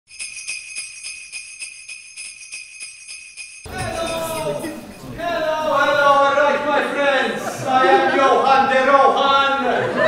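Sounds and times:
jingle bells shaken: 0.1 - 6.0
person speaking: 3.7 - 8.4.

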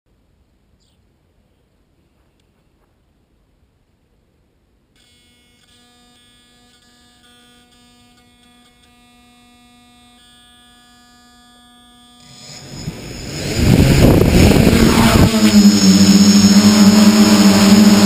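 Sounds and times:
faint motor hum: 4.9 - 18.0
propeller motor spinning up: 12.2 - 18.0.

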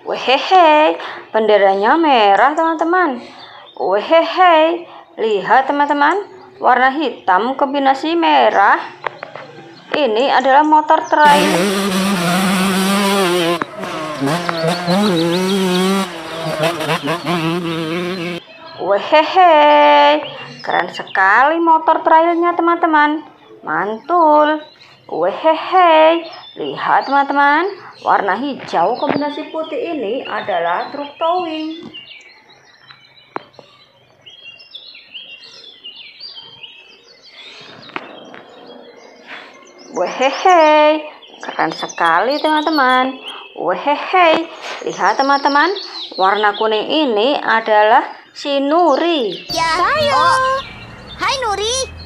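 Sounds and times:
small birds chirping: 0.6 - 52.0
dirt bike engine revving: 11.2 - 18.4, 49.5 - 52.0.

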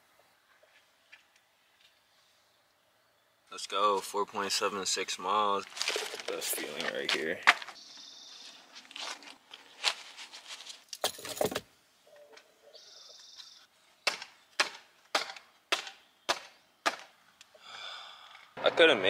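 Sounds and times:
rustling and handling: 5.6 - 7.8, 8.4 - 11.6.

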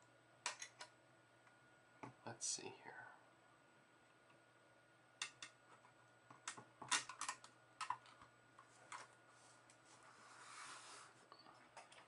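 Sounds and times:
plastic and metal parts clicking: 6.4 - 8.2.

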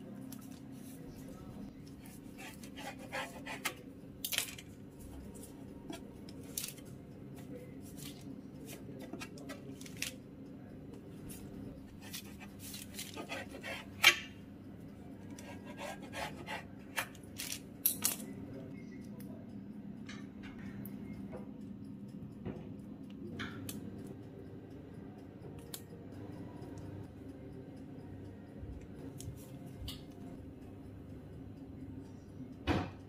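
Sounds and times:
steady low hum: 0.0 - 33.0
knife tapping and scraping on tray: 1.9 - 6.9, 8.6 - 10.0, 11.9 - 14.4, 15.2 - 17.3.

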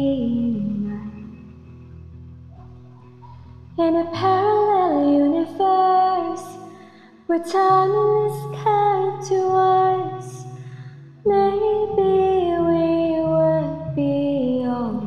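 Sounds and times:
woman singing: 0.0 - 1.4, 3.8 - 10.6, 11.2 - 15.0.

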